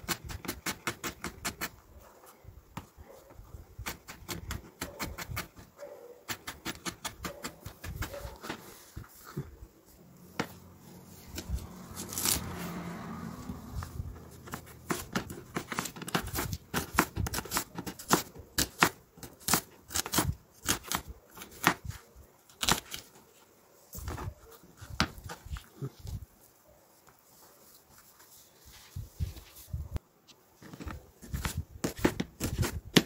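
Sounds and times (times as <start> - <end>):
rustling scraping: 7.3 - 18.1, 23.0 - 32.9.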